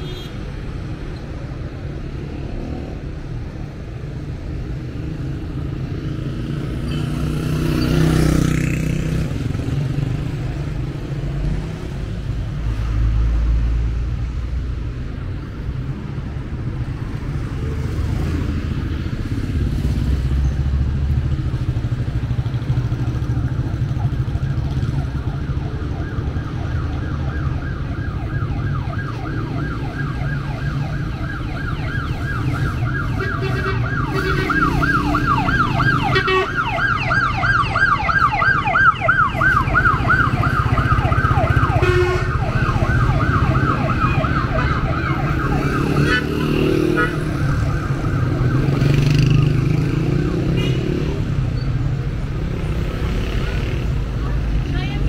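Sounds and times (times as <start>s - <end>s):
street traffic rumble: 0.0s - 55.0s
emergency siren yelping: 22.7s - 50.6s.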